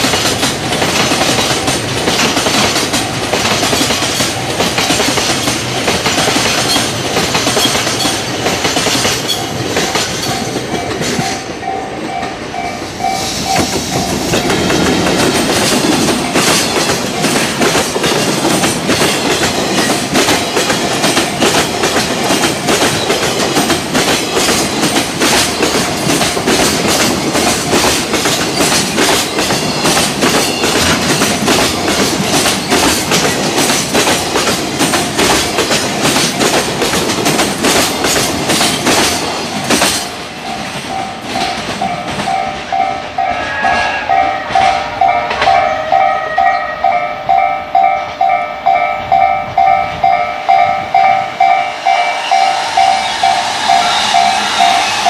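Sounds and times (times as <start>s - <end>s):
train wheels clattering over rails: 0.0s - 46.1s
level crossing bell ringing: 40.5s - 53.0s.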